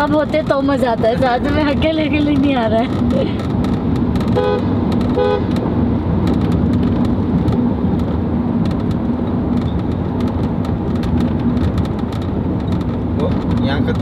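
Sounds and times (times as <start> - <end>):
car engine and tyre rumble: 0.0 - 14.0
constant low hum: 0.0 - 14.0.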